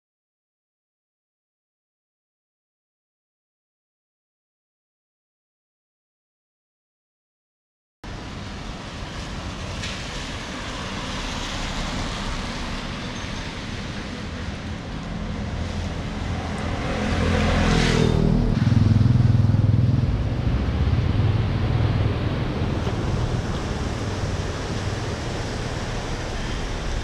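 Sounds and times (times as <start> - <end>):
light rain hissing on wet street: 8.1 - 16.3, 22.8 - 27.0
low engine hum: 8.1 - 27.0
vehicle passing on wet road: 8.1 - 27.0.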